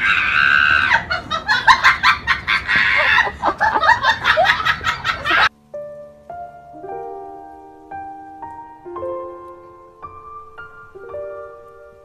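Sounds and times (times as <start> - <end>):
soft piano melody: 3.9 - 12.0.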